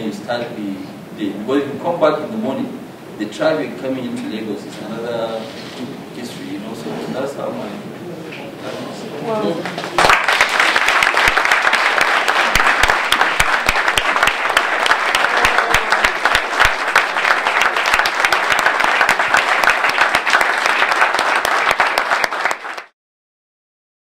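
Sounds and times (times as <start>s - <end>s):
large audience applauding: 9.6s - 23.0s.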